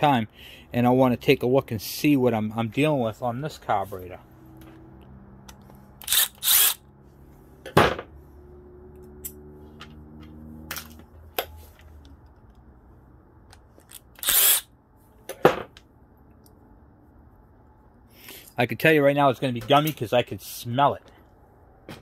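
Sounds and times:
drill motor whirring: 6.0s - 6.8s, 14.1s - 14.7s.

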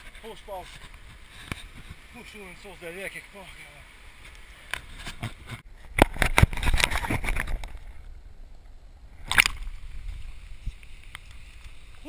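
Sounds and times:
camera tumbling through brush: 4.2s - 8.2s.

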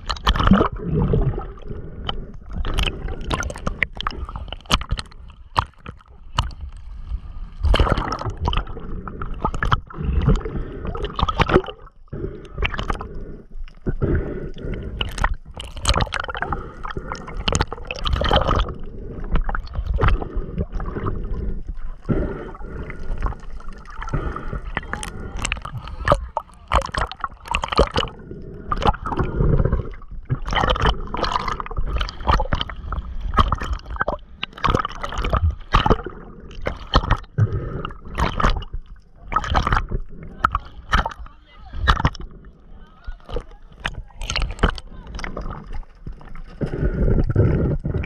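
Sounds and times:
water gurgling and sloshing: 0.0s - 48.0s
water splashes: 0.0s - 48.0s.

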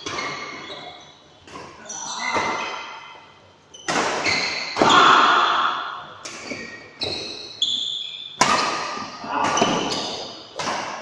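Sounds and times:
badminton rackets hitting shuttlecock: 3.8s - 7.6s, 8.4s - 11.0s.

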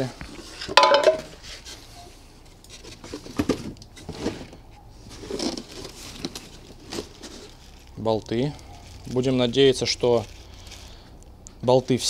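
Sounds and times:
rags and plastic bags rustling: 0.0s - 12.0s.

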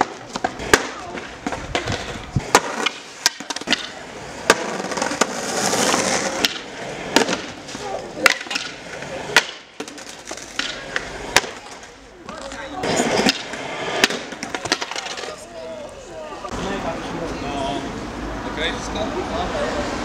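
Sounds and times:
skateboard wheels rolling hiss: 0.0s - 3.2s, 3.9s - 11.8s, 12.8s - 14.5s
skateboard clacking on concrete: 0.0s - 15.7s.

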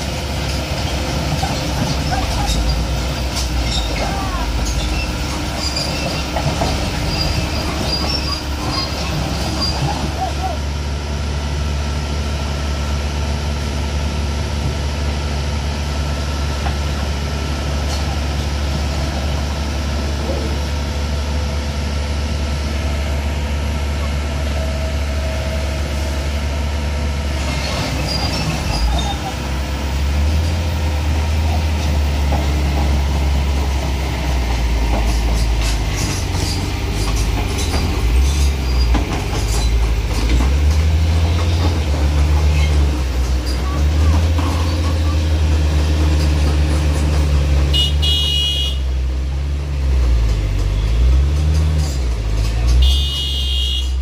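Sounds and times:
excavator diesel engine droning: 0.0s - 54.0s
metallic clanks and squeals: 1.4s - 10.5s, 27.4s - 29.5s, 35.0s - 40.5s, 41.3s - 45.3s.

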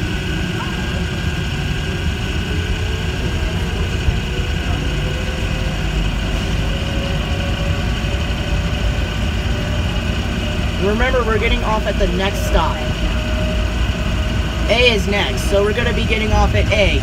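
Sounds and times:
high electronic whine: 0.0s - 17.0s
train running gear rumble: 0.0s - 17.0s.

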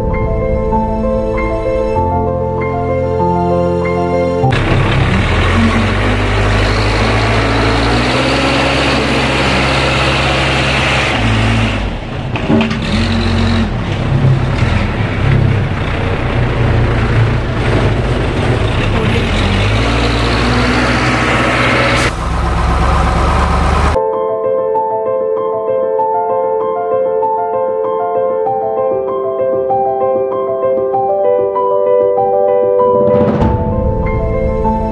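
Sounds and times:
heavy vehicle engine running: 0.0s - 24.0s.

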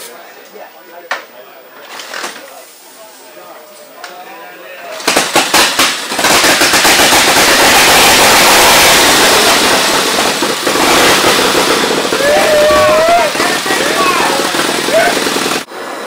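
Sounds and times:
motorcycle engine starting and running: 5.0s - 15.7s.

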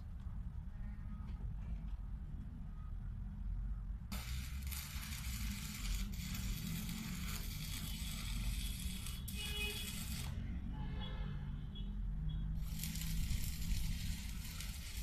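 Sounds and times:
arc welding crackling hiss: 4.1s - 10.4s, 12.6s - 15.0s.

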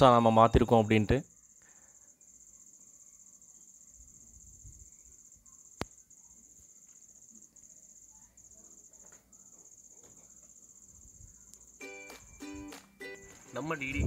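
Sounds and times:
high-pitched insect trill: 0.0s - 14.0s.

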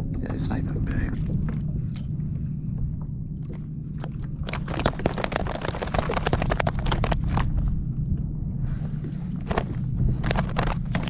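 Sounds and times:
steady low rumble: 0.0s - 11.0s
fish slapping and tapping: 3.4s - 7.6s, 9.4s - 11.0s.

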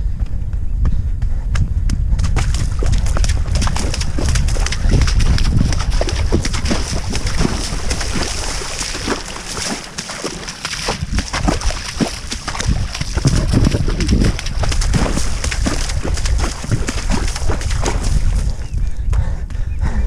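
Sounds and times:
low wind rumble on microphone: 0.0s - 20.0s
footsteps splashing through water: 2.2s - 18.8s.

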